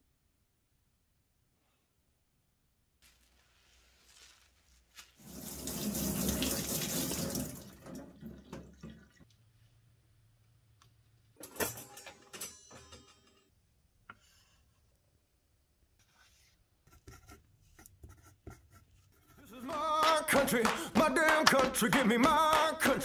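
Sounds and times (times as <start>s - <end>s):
knife being wiped: 3.0s - 5.5s
water running from a tap: 5.0s - 9.2s.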